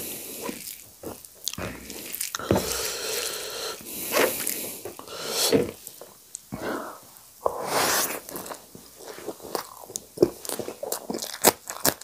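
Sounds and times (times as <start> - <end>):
hand squishing wet rice: 0.0 - 4.9.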